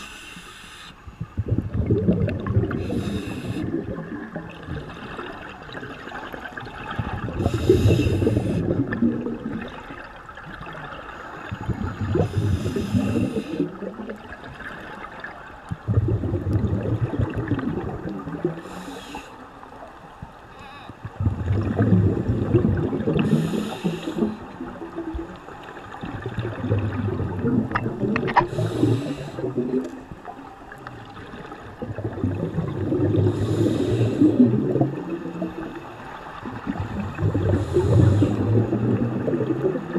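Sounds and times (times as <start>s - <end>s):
diver inhaling through regulator: 0.0s - 1.6s, 2.6s - 4.0s, 7.3s - 8.8s, 11.6s - 13.8s, 18.5s - 19.4s, 23.0s - 24.6s, 28.2s - 29.9s, 32.5s - 34.8s, 37.2s - 39.1s
exhaled air bubbling: 1.1s - 39.9s.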